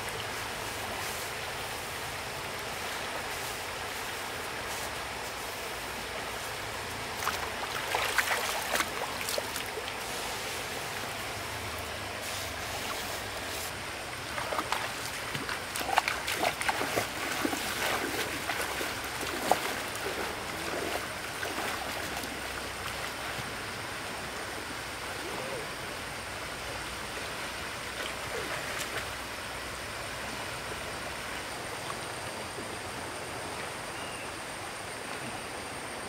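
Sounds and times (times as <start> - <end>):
water splashing: 0.0 - 25.6
stream water running: 0.0 - 36.0.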